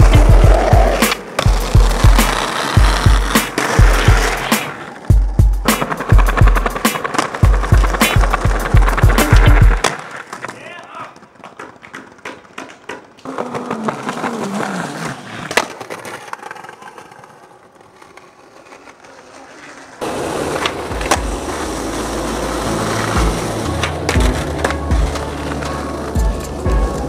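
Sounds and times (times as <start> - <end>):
sharp crack: 0.0 - 5.0, 5.6 - 13.6
skateboard rolling on asphalt: 0.0 - 27.0
skateboard rolling over paving: 0.0 - 27.0.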